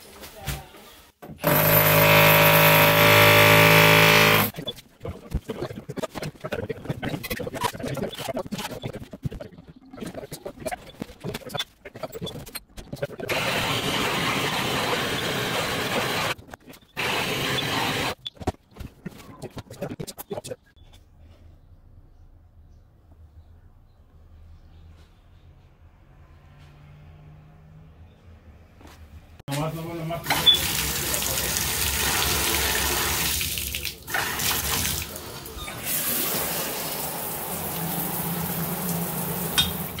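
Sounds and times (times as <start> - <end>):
water pouring from tub spout: 30.3 - 40.0
water spraying from showerhead: 30.3 - 40.0.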